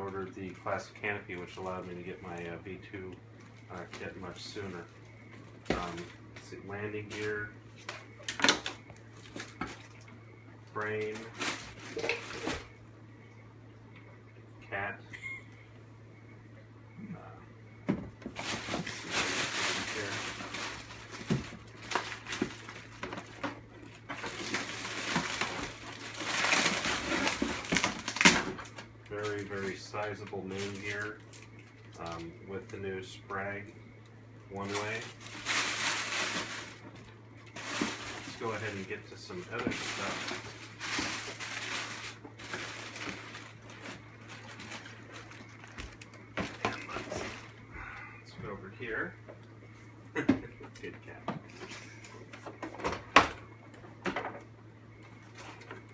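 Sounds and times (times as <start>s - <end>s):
low steady hum: 0.0s - 55.9s
plastic wrapping crinkling: 10.8s - 12.8s, 18.3s - 32.7s, 34.6s - 47.7s.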